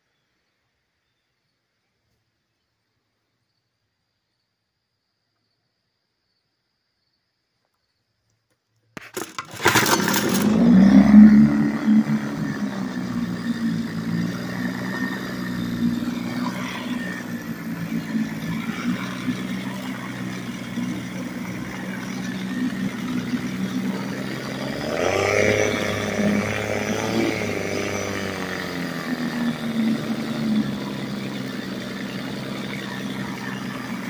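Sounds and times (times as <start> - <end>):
outboard motor running: 9.0 - 34.0.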